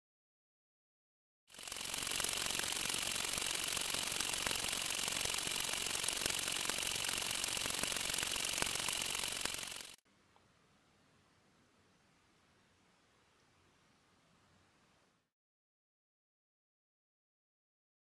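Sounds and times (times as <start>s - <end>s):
motor and gears clattering: 1.5s - 10.0s.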